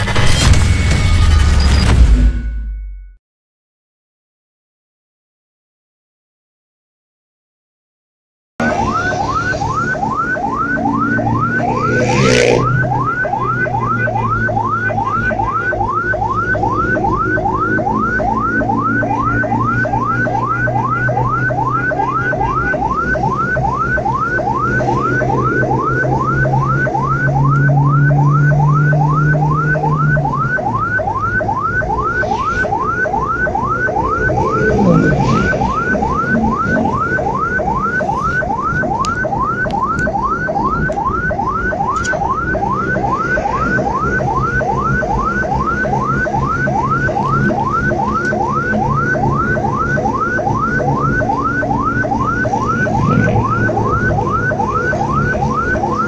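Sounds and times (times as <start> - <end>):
short loud noise: 0.0 - 3.2
ambulance siren yelping: 8.6 - 56.0
engine and road noise: 8.6 - 56.0.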